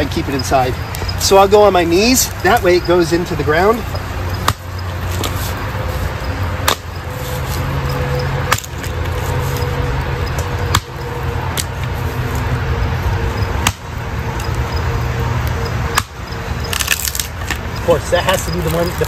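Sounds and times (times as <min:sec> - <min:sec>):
steady low hum: 0:00.0 - 0:19.0
axe chopping into log: 0:04.4 - 0:04.6, 0:06.6 - 0:06.9, 0:13.6 - 0:13.8.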